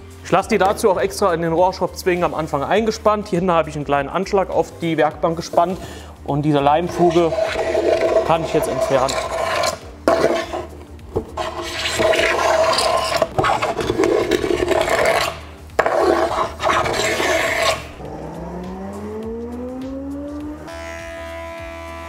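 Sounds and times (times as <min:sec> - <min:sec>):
hand scraper scraping wood: 0:06.9 - 0:18.0
music with rising glide: 0:13.2 - 0:22.0.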